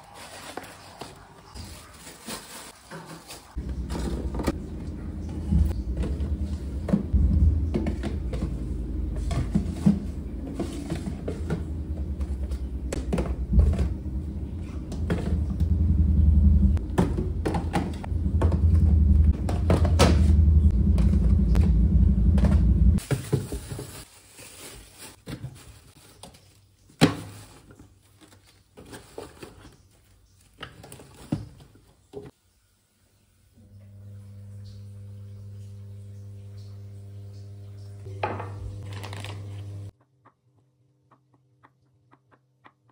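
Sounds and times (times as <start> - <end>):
plastic containers knocking: 3.6 - 15.7, 16.8 - 21.6
steady low hum: 3.6 - 23.0
steady low rumble: 3.6 - 23.0.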